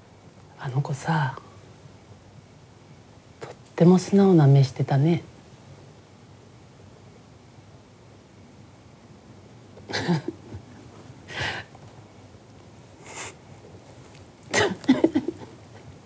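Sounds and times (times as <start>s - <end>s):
person coughing: 9.9s - 10.4s, 14.5s - 15.4s.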